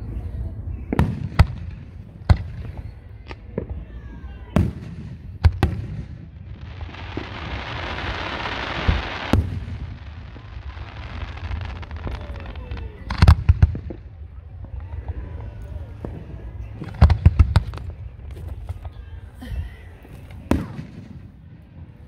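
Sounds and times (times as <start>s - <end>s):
dense noisy fireworks rush: 0.0s - 22.0s
fireworks booming: 0.8s - 19.0s, 20.2s - 22.0s.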